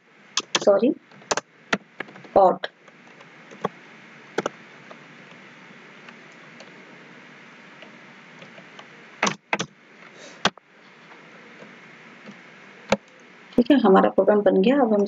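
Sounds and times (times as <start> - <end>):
steady background hiss: 0.0 - 15.0
keyboard keystrokes: 0.4 - 1.4, 9.2 - 9.7.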